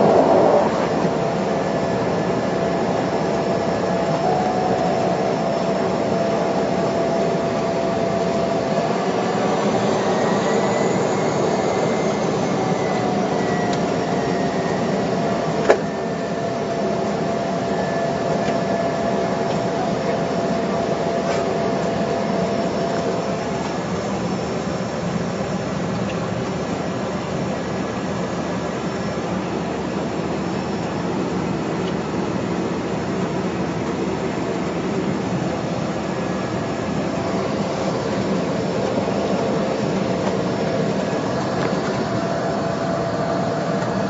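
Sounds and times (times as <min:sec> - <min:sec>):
turboprop engine drone: 0:00.0 - 0:44.0.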